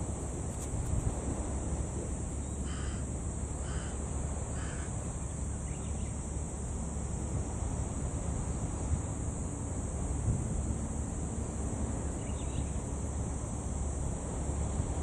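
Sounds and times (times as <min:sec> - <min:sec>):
crow cawing: 0:02.6 - 0:03.0, 0:03.6 - 0:04.0, 0:04.6 - 0:04.9.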